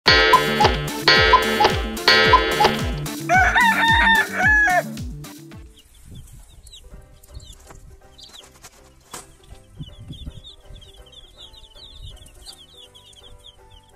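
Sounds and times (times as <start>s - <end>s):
upbeat music: 0.0s - 5.6s
rooster crowing: 3.3s - 4.9s
chicks peeping: 5.6s - 13.9s.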